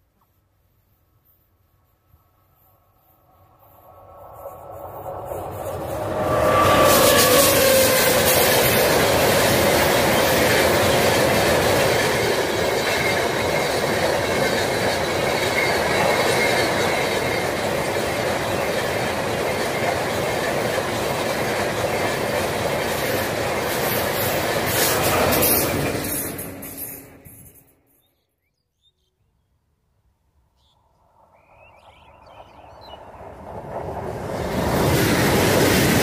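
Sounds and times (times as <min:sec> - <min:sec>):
faint thin squeal: 0:01.2 - 0:08.2
train wheels rumbling on track: 0:01.8 - 0:27.9, 0:31.7 - 0:36.0.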